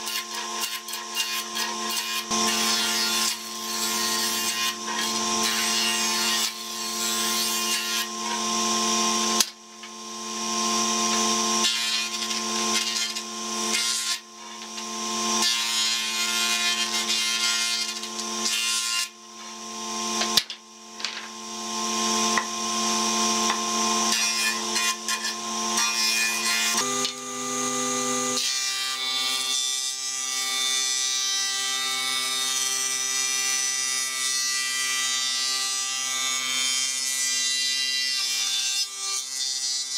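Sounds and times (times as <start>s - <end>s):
jointer motor hum: 26.7s - 28.4s.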